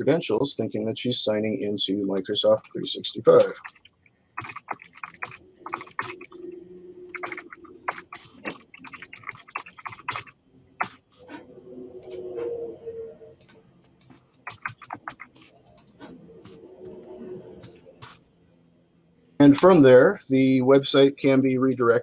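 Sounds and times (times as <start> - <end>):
computer keyboard typing: 3.4 - 11.0, 13.4 - 16.9.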